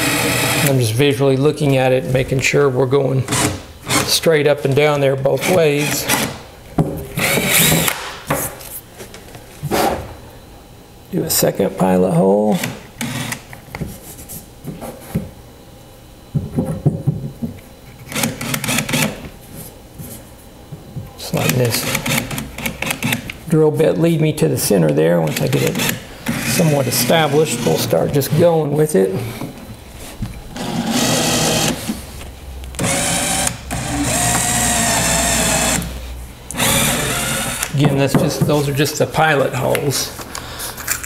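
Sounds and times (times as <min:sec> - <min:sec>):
power drill boring into wood: 0:00.0 - 0:00.7, 0:07.2 - 0:07.9, 0:25.3 - 0:27.8, 0:30.6 - 0:31.8, 0:32.8 - 0:35.9, 0:36.5 - 0:37.8.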